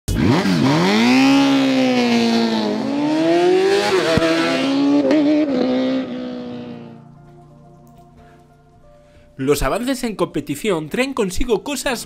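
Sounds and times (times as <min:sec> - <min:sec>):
superbike engine revving through gears: 0:00.1 - 0:07.0.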